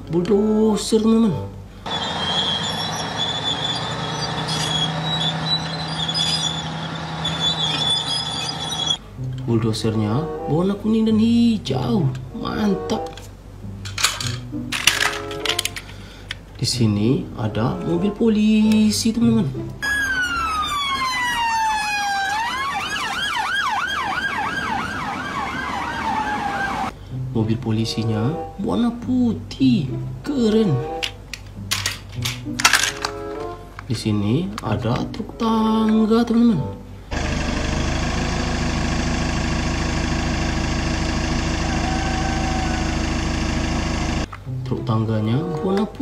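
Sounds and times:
truck engine idling: 0:01.8 - 0:09.0, 0:37.1 - 0:44.3
police car siren: 0:01.9 - 0:04.4, 0:19.8 - 0:26.9, 0:39.6 - 0:44.3.

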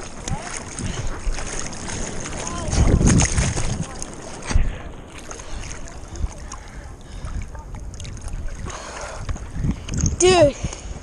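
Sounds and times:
water splashing against surfboard: 0:00.0 - 0:10.2
lapping water: 0:00.0 - 0:11.0.

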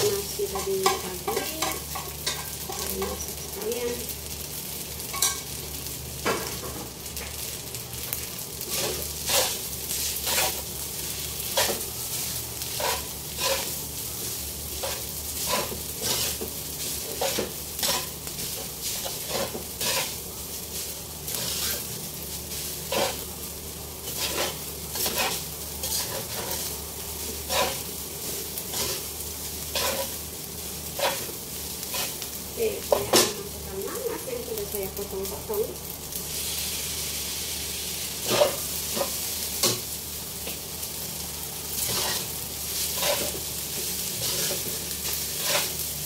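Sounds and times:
rice sizzling in a wok: 0:00.0 - 0:46.0
spatula scraping and knocking pan: 0:00.4 - 0:03.2, 0:12.7 - 0:13.8, 0:14.8 - 0:20.2, 0:24.0 - 0:26.7, 0:27.4 - 0:27.8, 0:29.7 - 0:30.2, 0:41.8 - 0:45.8.

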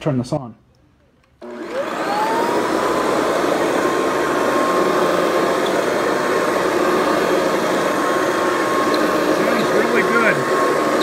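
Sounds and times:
vacuum cleaner motor whine: 0:01.4 - 0:11.0.

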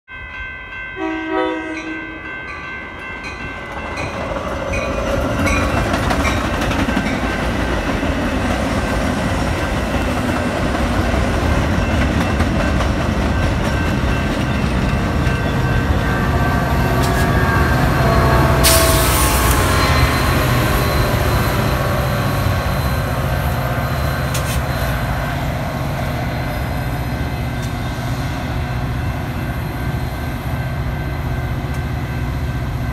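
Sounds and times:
crossing bells ringing: 0:00.1 - 0:32.9
diesel locomotive engine hum: 0:00.4 - 0:32.9
train horn: 0:01.0 - 0:02.3, 0:16.0 - 0:22.9
train cars rumbling and clattering: 0:02.2 - 0:32.9.

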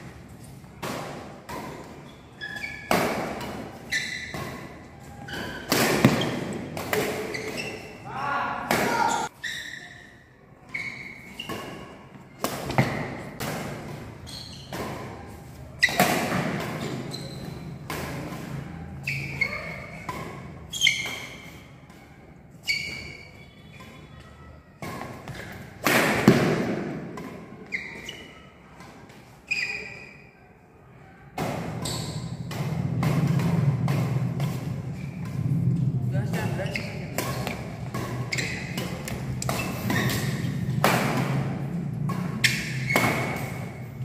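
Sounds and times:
rackets hitting shuttlecock: 0:00.0 - 0:09.3, 0:11.0 - 0:24.0, 0:24.8 - 0:29.4, 0:31.3 - 0:44.0.

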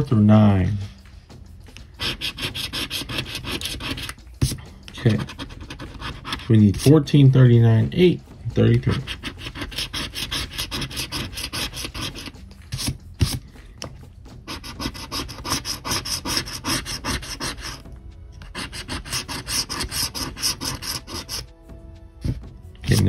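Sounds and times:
faint background music: 0:00.0 - 0:23.0
coin scratching lottery ticket: 0:02.0 - 0:07.0, 0:08.8 - 0:13.4, 0:14.4 - 0:17.8, 0:18.4 - 0:21.4.

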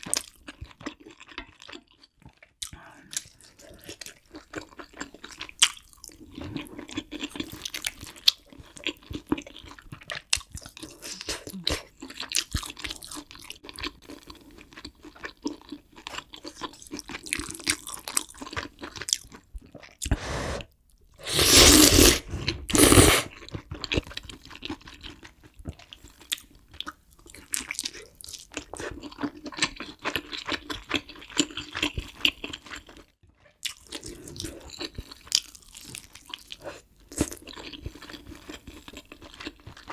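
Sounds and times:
chewing and crunching: 0:00.0 - 0:20.2, 0:23.3 - 0:39.9
noodle slurp: 0:20.0 - 0:23.3.

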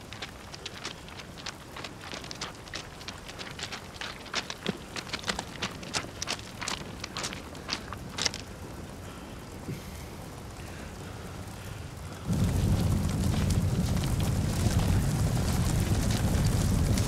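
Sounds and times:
footsteps on gravel: 0:00.0 - 0:08.5
steady outdoor hiss: 0:00.0 - 0:17.0.

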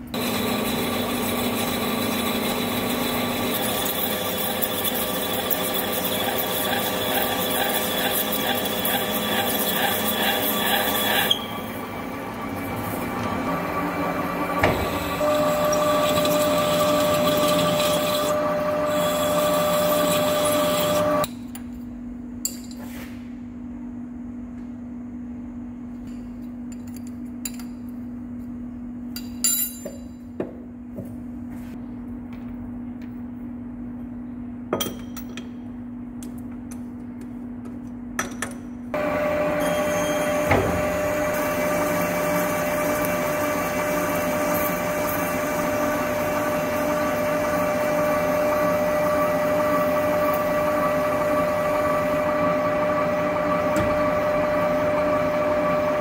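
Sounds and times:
low machine hum: 0:00.0 - 0:56.0
high ringing tone: 0:39.4 - 0:40.5.

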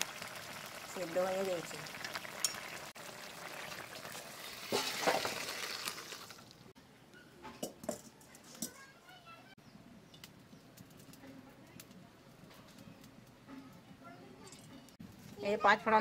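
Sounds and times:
wok hissing and crackling: 0:00.0 - 0:06.8.

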